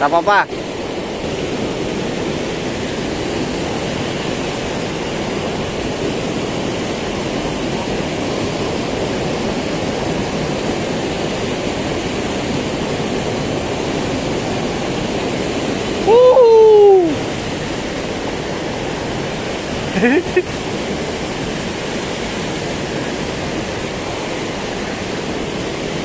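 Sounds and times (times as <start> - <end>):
water rushing over rocks: 0.0 - 26.0.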